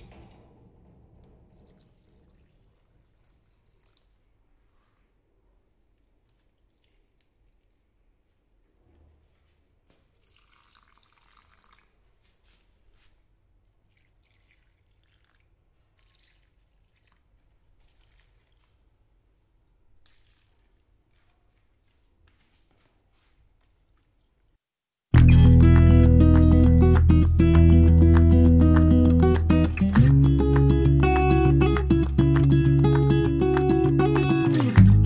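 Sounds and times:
water trickling and dripping: 0:01.2 - 0:04.4, 0:10.0 - 0:12.6, 0:13.6 - 0:19.0, 0:20.0 - 0:21.2
water pouring: 0:01.2 - 0:04.5, 0:06.2 - 0:07.9, 0:10.0 - 0:12.2, 0:13.6 - 0:19.0, 0:20.0 - 0:21.0, 0:25.2 - 0:35.0
acoustic guitar music: 0:25.2 - 0:35.0.

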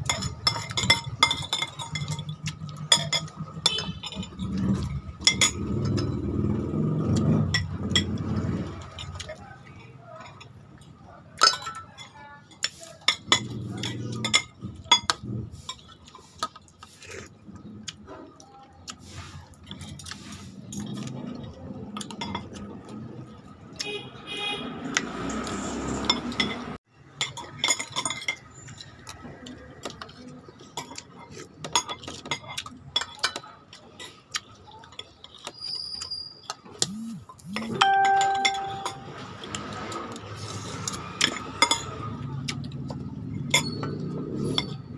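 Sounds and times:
cutlery clinking on plates: 0:00.0 - 0:06.1, 0:11.4 - 0:16.6, 0:26.0 - 0:28.8, 0:29.8 - 0:35.6, 0:36.9 - 0:40.0, 0:40.8 - 0:42.2.

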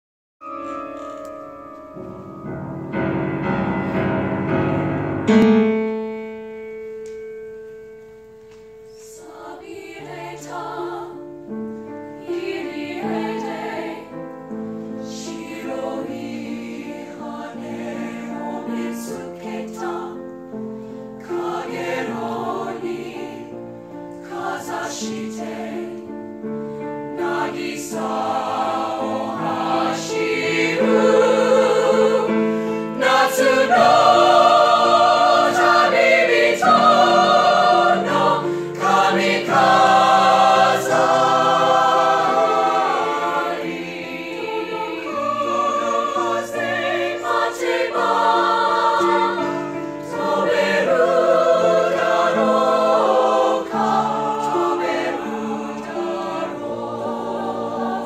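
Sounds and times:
mixed choir singing: 0:08.9 - 0:58.0.

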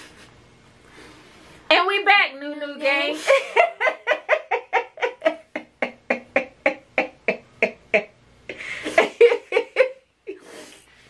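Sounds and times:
people laughing hard: 0:03.2 - 0:07.9, 0:08.7 - 0:10.0.

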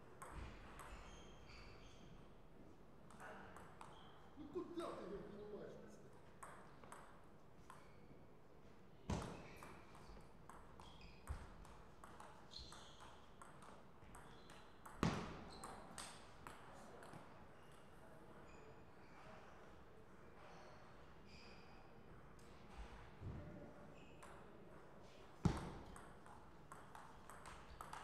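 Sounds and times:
table tennis ball clicking: 0:25.8 - 0:28.0.

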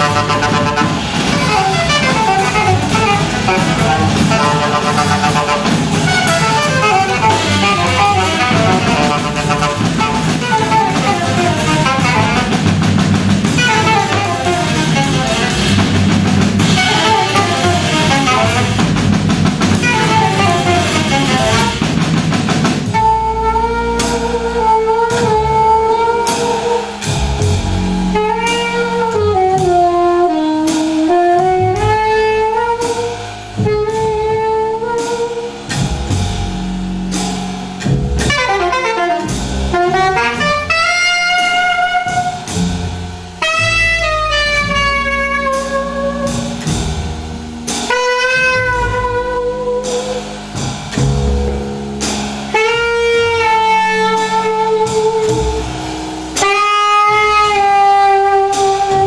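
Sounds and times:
saxophone: 0:00.0 - 0:22.0, 0:22.9 - 0:35.8, 0:38.2 - 0:42.7, 0:43.4 - 0:46.8, 0:47.7 - 0:50.6, 0:52.5 - 0:59.0
double bass: 0:00.0 - 0:59.0
drums and cymbals: 0:00.0 - 0:59.0.

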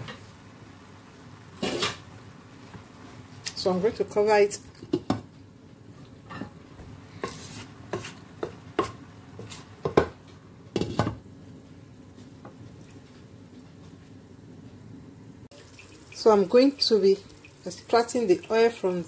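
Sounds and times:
wooden spoon scraping rice in pan: 0:07.2 - 0:09.9.

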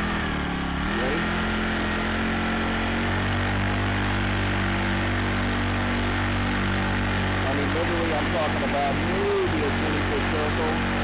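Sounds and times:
small four-stroke engine running: 0:00.0 - 0:11.0.

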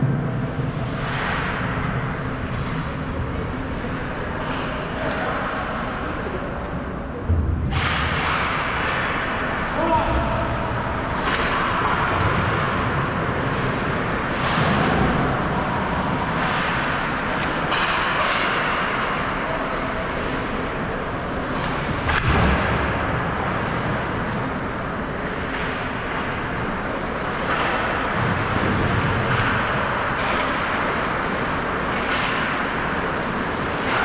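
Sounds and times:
steady rink hum: 0:00.0 - 0:34.0
hockey sticks and puck knocking: 0:10.8 - 0:19.4, 0:21.5 - 0:34.0.

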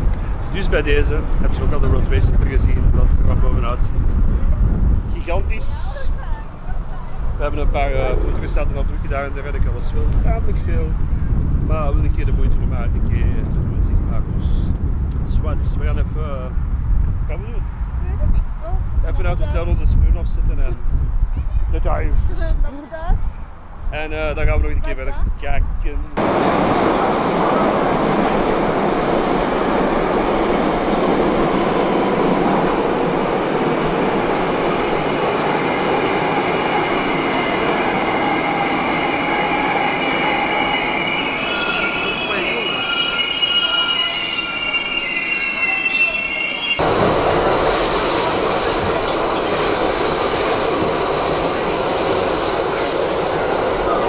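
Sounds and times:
subway train rumbling: 0:00.0 - 0:25.4, 0:26.1 - 0:54.0
steel wheels squealing: 0:34.8 - 0:54.0.

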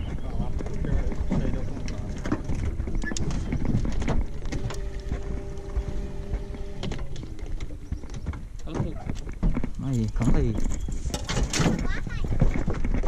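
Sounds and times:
wind buffeting microphone: 0:00.0 - 0:13.0
electric motor hum: 0:00.1 - 0:08.6.

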